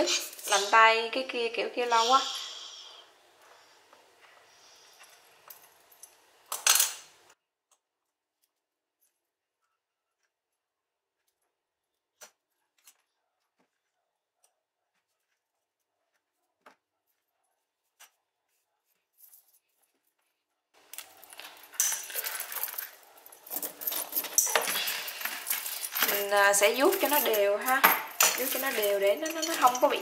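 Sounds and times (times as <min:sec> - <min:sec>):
metal chain jangling: 0:20.8 - 0:30.0.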